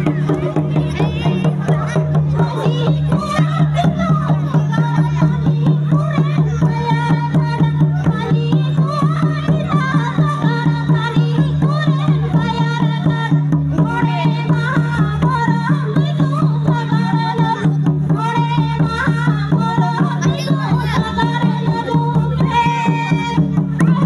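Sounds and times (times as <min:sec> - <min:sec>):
person singing: 0:00.0 - 0:09.3, 0:19.5 - 0:24.0
fast drum rhythm: 0:00.0 - 0:24.0.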